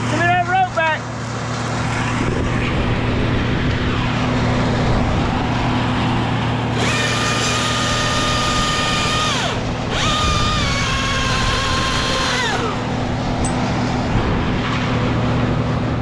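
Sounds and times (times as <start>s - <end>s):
steady low hum: 0.0s - 16.0s
chainsaw high whine: 6.7s - 13.2s.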